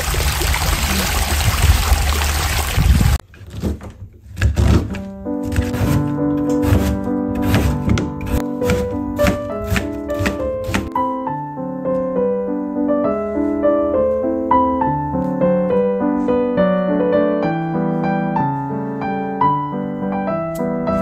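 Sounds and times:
solo piano music: 0:05.0 - 0:21.0.

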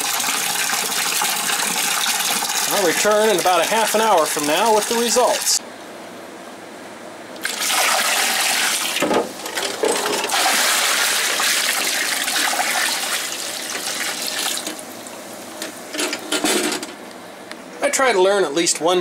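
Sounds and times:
water pouring into a sink: 0:00.0 - 0:05.6, 0:07.4 - 0:09.0, 0:10.0 - 0:14.8.

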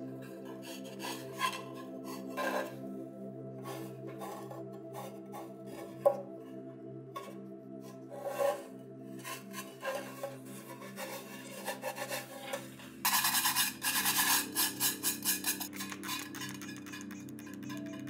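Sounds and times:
gloves scraping rusty metal tin: 0:09.2 - 0:18.0.

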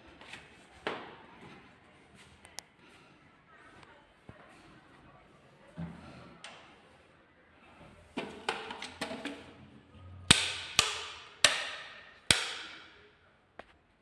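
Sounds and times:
sharp knocks echoing in empty room: 0:10.2 - 0:13.1.

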